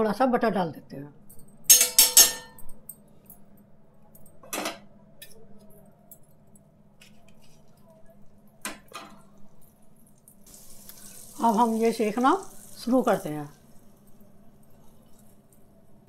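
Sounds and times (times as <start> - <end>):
spoon clinking on griddle: 1.7 - 3.0.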